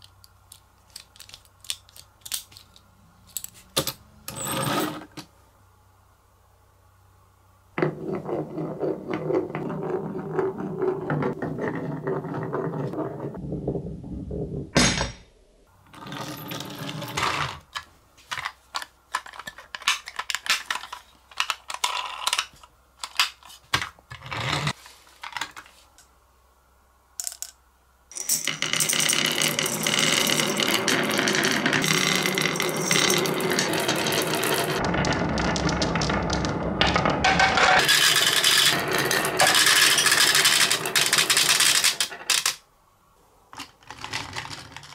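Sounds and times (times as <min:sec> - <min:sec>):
ball knocking on wooden track: 0:07.8 - 0:14.7, 0:28.9 - 0:39.6
marbles rattling down wooden slope: 0:28.2 - 0:42.6, 0:43.8 - 0:44.9.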